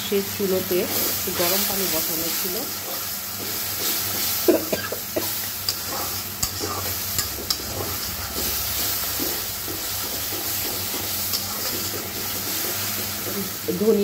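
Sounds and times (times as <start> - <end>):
food sizzling in a pan: 0.0 - 14.0
spatula stirring and scraping: 0.7 - 13.7
spatula striking pan: 5.6 - 13.1.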